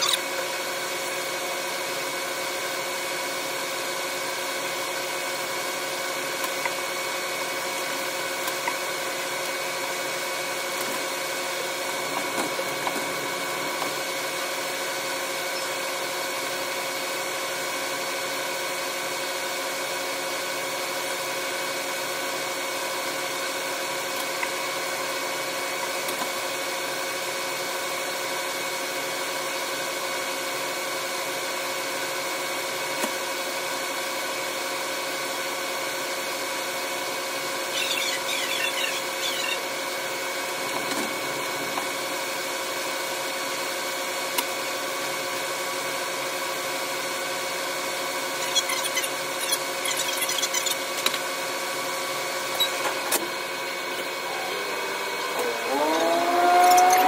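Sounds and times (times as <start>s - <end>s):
wavering squeals: 37.7s - 39.6s, 55.4s - 57.0s
drone of held tones: 53.9s - 57.0s.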